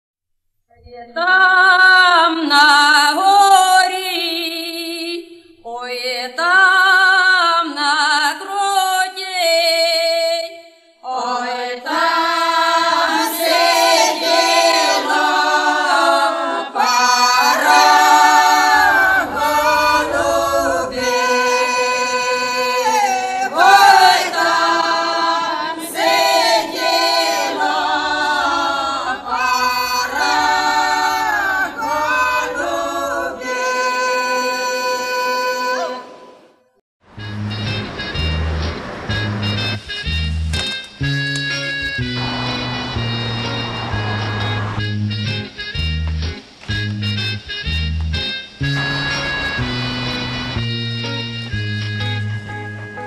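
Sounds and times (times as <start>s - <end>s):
choir singing: 11.1s - 36.5s, 42.1s - 44.8s, 48.7s - 50.7s.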